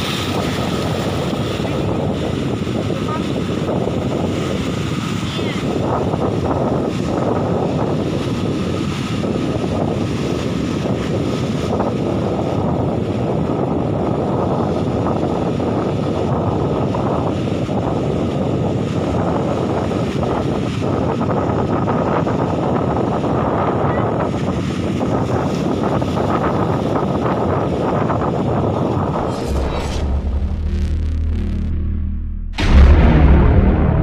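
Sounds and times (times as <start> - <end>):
surf breaking over rocks: 0.0 - 21.3
wind on microphone: 0.0 - 34.0.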